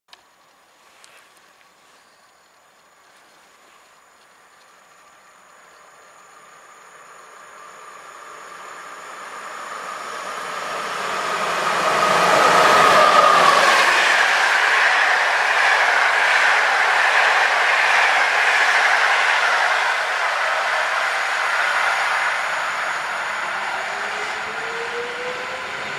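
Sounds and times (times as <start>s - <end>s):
electric locomotive passing: 4.0s - 25.9s
train wheels rushing on rails: 6.4s - 25.9s.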